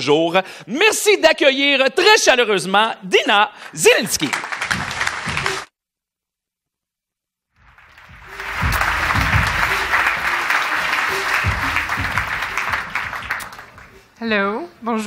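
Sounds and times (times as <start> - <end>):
audience applauding: 3.7 - 5.7, 7.6 - 14.1
music playing: 7.7 - 13.8.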